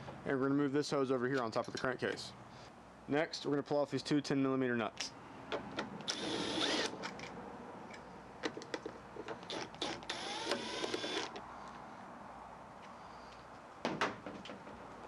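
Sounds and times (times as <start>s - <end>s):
cordless ratchet motor whine: 6.0s - 6.9s, 9.5s - 11.4s.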